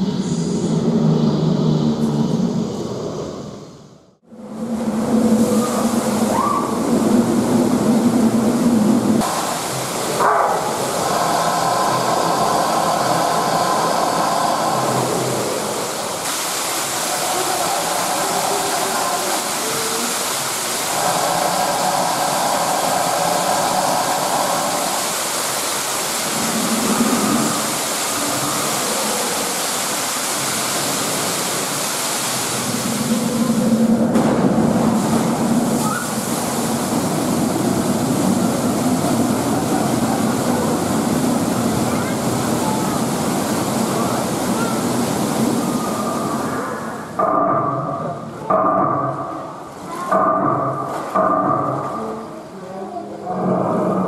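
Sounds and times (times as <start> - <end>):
indoor waterfall rushing: 4.2 - 54.0.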